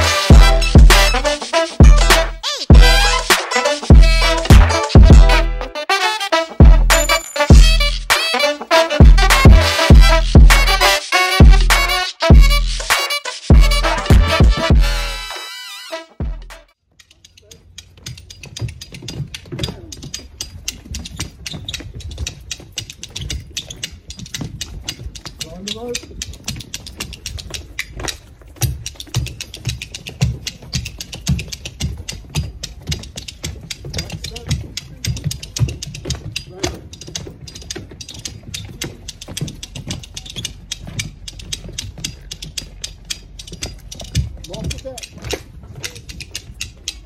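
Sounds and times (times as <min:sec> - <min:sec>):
trainers tapping on wooden deck: 0:17.2 - 0:47.0.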